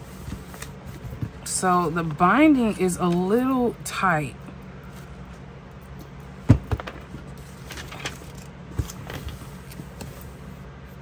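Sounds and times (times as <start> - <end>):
paper handling: 0.1 - 1.4, 6.7 - 10.6
book knocking on tabletop: 6.5 - 7.0.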